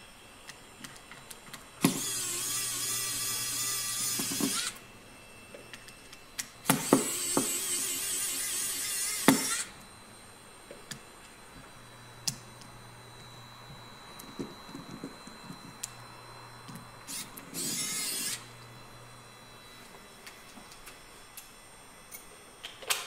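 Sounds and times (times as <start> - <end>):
electric screwdriver running: 1.8 - 4.8, 6.6 - 9.7, 16.6 - 18.5.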